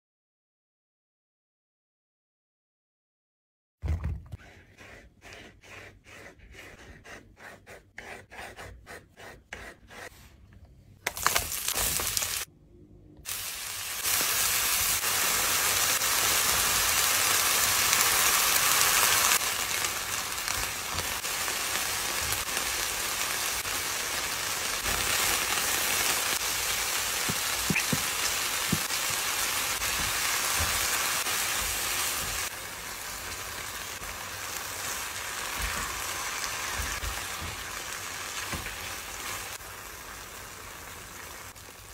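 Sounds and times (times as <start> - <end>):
food sizzling in frying pan: 11.2 - 12.5, 13.3 - 41.9.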